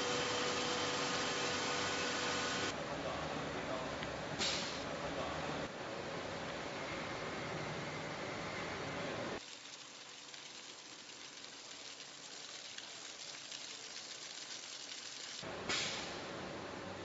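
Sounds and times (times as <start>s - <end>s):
machine room noise: 0.0s - 10.8s
grain pouring hiss: 9.4s - 16.1s.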